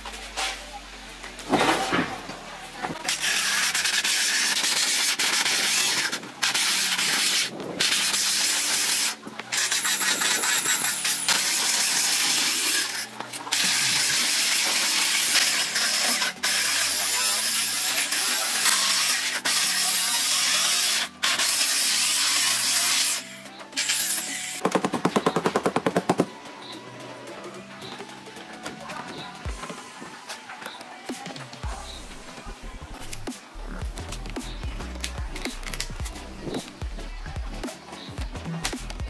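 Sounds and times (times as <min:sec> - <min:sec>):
angle grinder cutting: 0:03.2 - 0:24.6.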